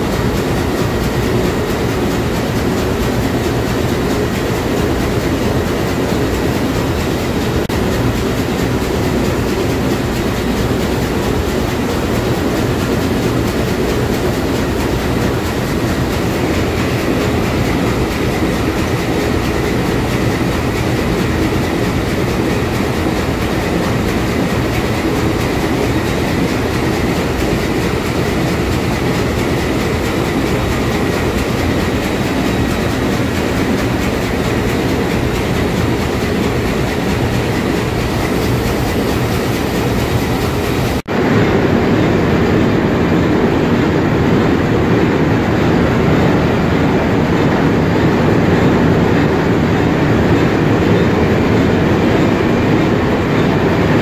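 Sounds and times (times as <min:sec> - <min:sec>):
marine diesel engine running: 0:00.0 - 0:54.0.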